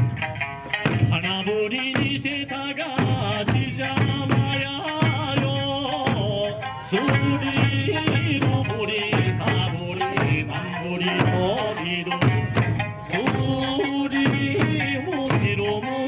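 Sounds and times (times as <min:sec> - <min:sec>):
drum hits: 0:00.0 - 0:16.0.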